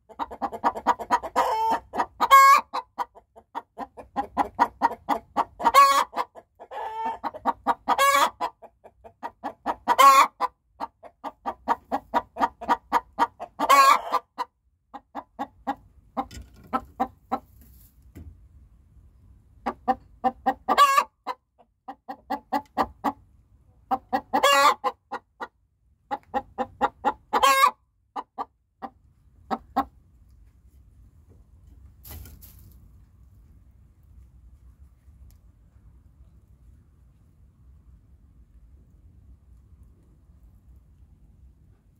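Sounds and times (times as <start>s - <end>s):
hen cackling and squawking: 0.0s - 17.4s, 19.6s - 23.2s, 23.9s - 25.5s, 26.1s - 28.9s.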